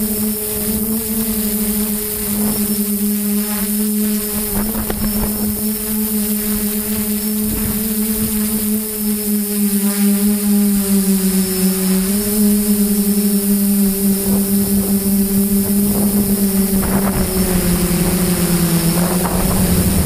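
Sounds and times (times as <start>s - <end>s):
model plane motor humming: 0.0s - 20.0s
rushing air: 15.9s - 20.0s.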